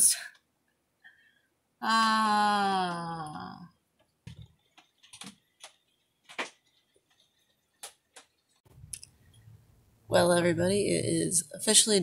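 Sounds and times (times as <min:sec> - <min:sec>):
sharp irregular clicks: 0:04.2 - 0:09.1.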